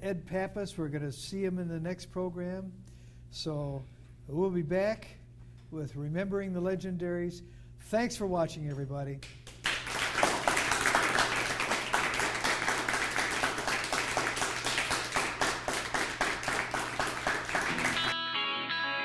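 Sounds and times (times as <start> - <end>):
audience applauding: 9.5 - 18.2
electric guitar music: 17.6 - 19.0.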